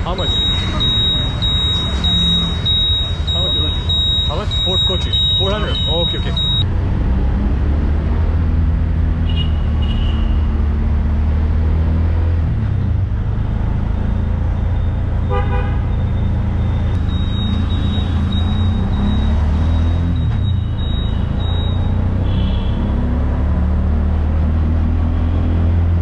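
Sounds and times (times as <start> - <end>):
auto-rickshaw engine drone: 0.0 - 26.0
vehicle horn tooting: 15.3 - 15.9, 22.2 - 22.9.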